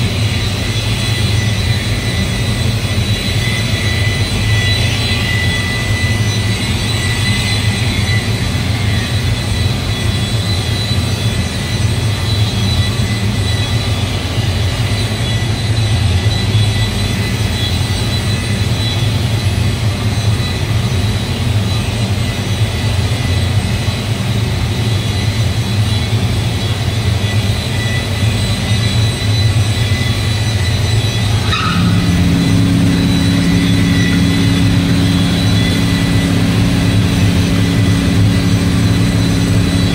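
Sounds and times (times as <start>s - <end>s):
polisher motor humming: 31.2s - 39.9s.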